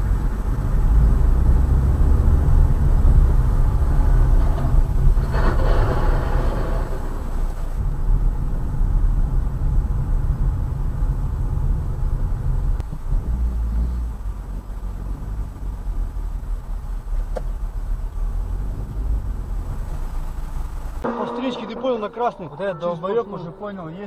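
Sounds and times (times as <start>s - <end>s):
car road and engine rumble: 0.0s - 23.6s
higher-pitched sound: 21.0s - 22.8s.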